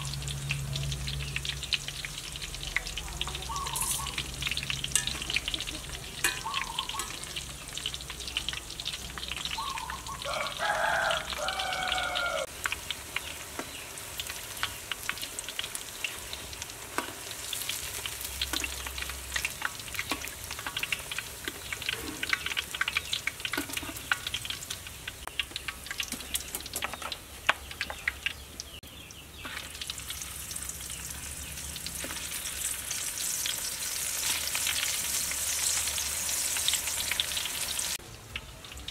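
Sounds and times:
deep-frying sizzle with pops: 0.0s - 38.9s
bird calling: 3.0s - 4.5s, 5.1s - 7.6s, 9.4s - 12.5s.

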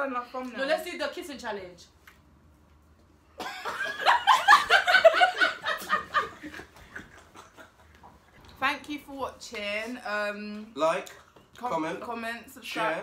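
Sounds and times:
group laughing: 3.4s - 8.1s.

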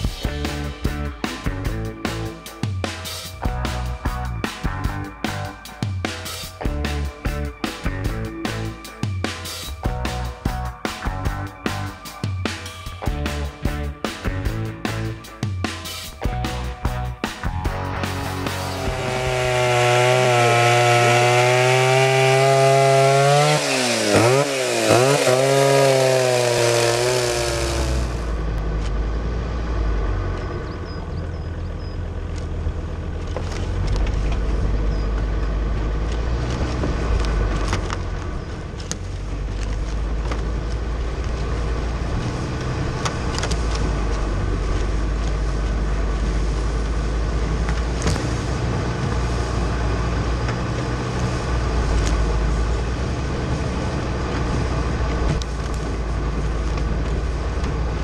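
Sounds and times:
music: 0.0s - 27.3s
car engine and road rumble: 0.0s - 58.0s
branches scraping along car: 18.0s - 29.0s, 32.4s - 58.0s
twig clicks: 42.6s - 44.2s.

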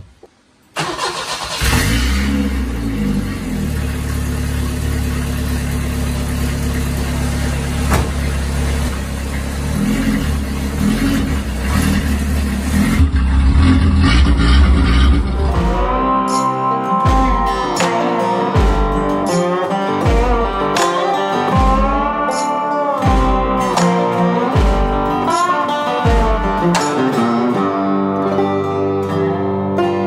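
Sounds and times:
loud unmuffled car engine: 1.6s - 16.3s.

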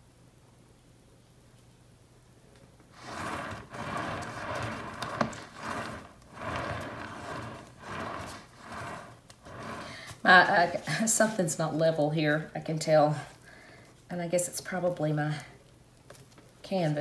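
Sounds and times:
turntable rolling noise: 3.0s - 10.8s.

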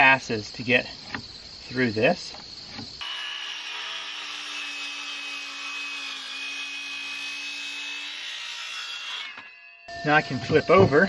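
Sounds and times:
circular saw cutting wood: 3.0s - 11.0s.

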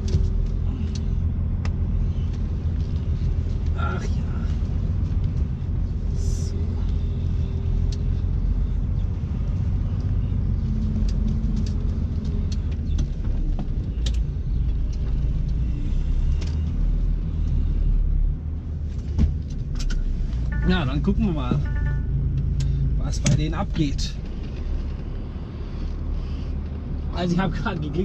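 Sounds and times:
diesel engine rumbling: 0.0s - 28.0s.

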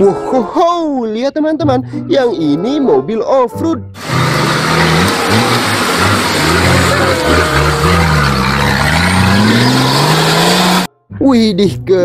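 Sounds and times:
buggy engine revving: 4.0s - 10.9s.

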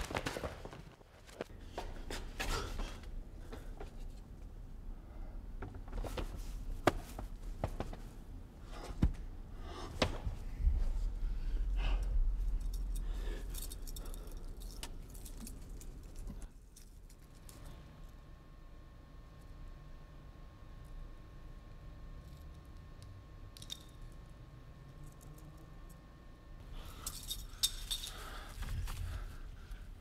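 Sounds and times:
small metal objects jangling: 12.6s - 17.0s, 26.9s - 28.3s.

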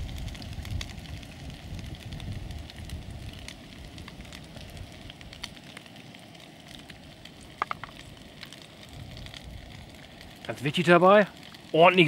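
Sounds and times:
wind rumble on microphone: 0.0s - 5.5s, 8.9s - 10.4s.

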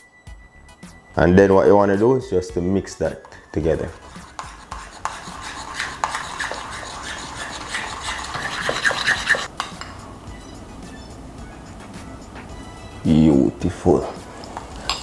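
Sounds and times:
spoon stirring thick sauce: 3.2s - 9.9s.

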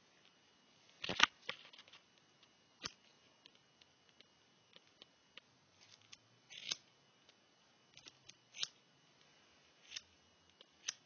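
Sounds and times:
scissors snipping hair: 5.9s - 6.8s, 8.0s - 8.8s, 9.9s - 11.0s
scissor blades clicking: 6.5s - 6.8s, 8.0s - 8.8s, 10.8s - 11.0s.

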